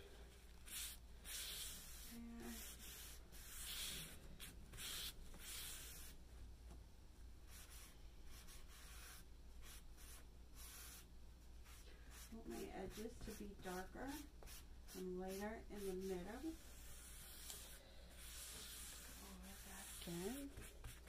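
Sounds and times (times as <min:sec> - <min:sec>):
paper towel wiping table: 0:15.8 - 0:21.0.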